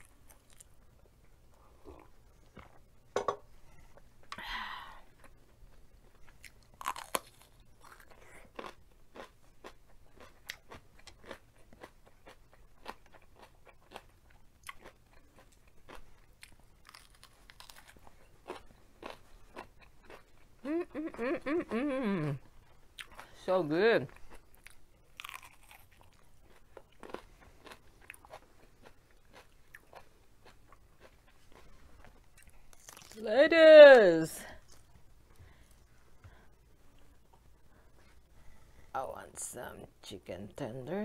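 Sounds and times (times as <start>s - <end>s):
chewing and crunching food: 0.0s - 2.9s, 5.1s - 21.8s, 22.4s - 33.3s
bites into crisp vegetable: 10.2s - 20.2s, 24.6s - 26.2s.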